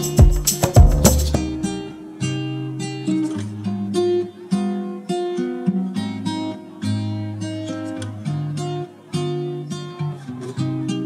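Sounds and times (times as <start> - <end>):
acoustic guitar plucked chords: 0.0 - 11.0.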